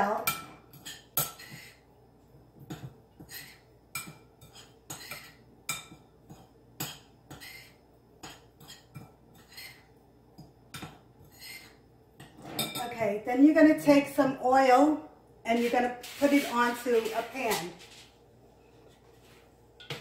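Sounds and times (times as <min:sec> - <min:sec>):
utensil scraping and clinking bowl: 0:00.2 - 0:01.8, 0:02.7 - 0:13.0.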